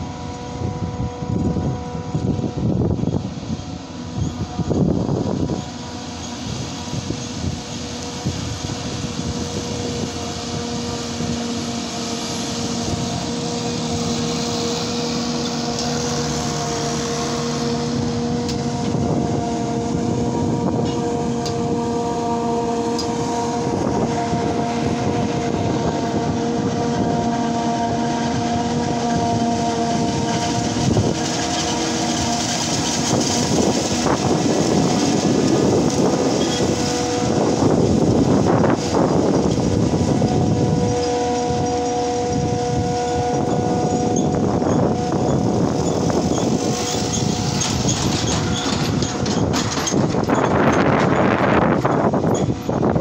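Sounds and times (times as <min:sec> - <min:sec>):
harvester machine drone: 0:00.0 - 0:53.0.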